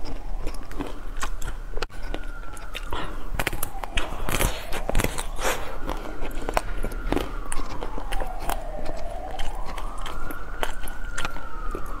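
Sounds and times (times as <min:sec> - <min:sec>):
crunching ice cream bar shell: 0:00.0 - 0:12.0
wailing tone: 0:01.7 - 0:12.0.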